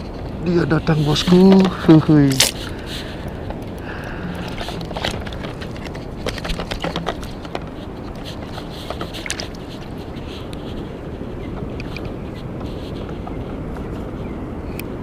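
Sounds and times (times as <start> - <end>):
sea water washing: 0.0 - 13.0
small clicks and splashes: 4.4 - 10.6.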